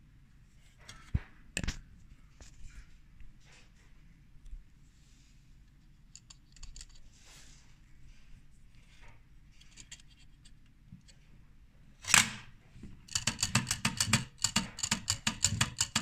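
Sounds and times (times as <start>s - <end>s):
fast mechanical clicks: 13.1s - 16.0s.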